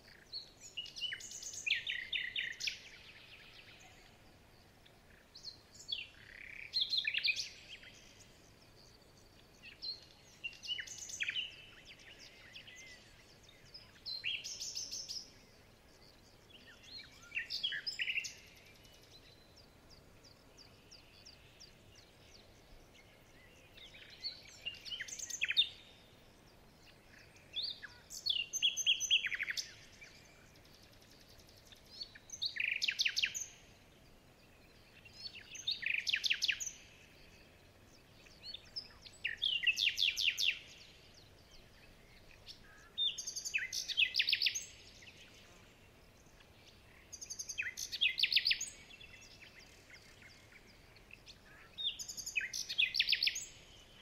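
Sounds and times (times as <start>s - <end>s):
faint steady hiss: 0.0s - 54.0s
songbird trilling: 32.0s - 33.6s, 38.3s - 41.0s, 41.6s - 44.9s, 46.9s - 49.6s, 50.6s - 54.0s.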